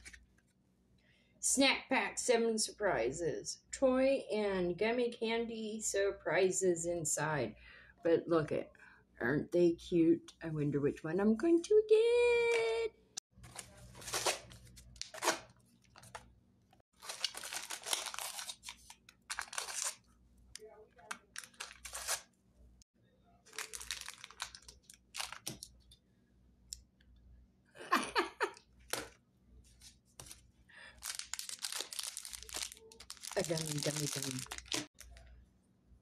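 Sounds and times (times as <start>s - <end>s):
plastic packets crinkling: 17.0s - 20.1s, 21.1s - 22.2s, 23.5s - 25.8s, 30.9s - 35.3s.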